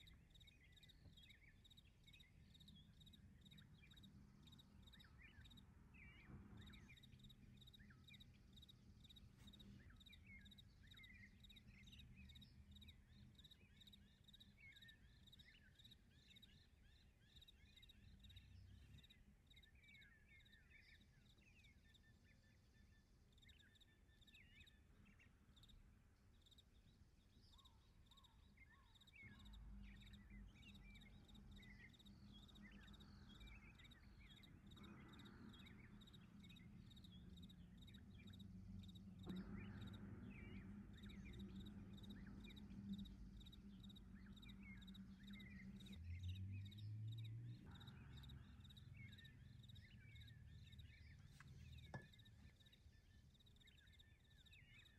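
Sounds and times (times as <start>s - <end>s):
steady low hum: 28.5s - 54.9s.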